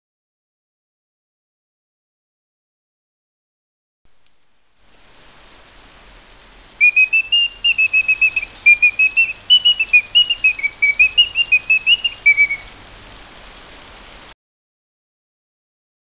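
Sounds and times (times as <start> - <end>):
steady hiss: 4.1 - 14.4
mechanical bird whistling song: 6.8 - 12.8.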